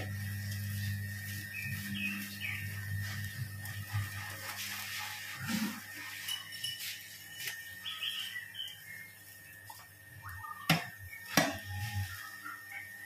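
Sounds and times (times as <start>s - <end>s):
feed mixer motor humming: 0.0s - 6.0s.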